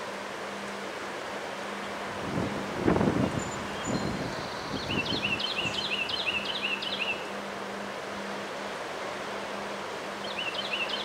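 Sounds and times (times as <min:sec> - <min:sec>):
strong wind through treetops: 0:00.0 - 0:11.0
bird singing high notes: 0:03.4 - 0:07.3.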